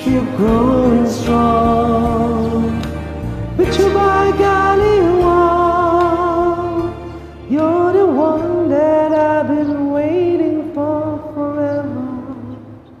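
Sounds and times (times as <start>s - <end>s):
man singing with vibrato: 0.0s - 12.9s
karaoke backing track: 0.0s - 13.0s.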